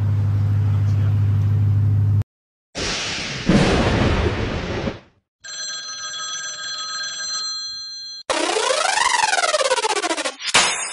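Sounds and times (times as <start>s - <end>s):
electronic music with sweeping tones: 8.3s - 10.6s.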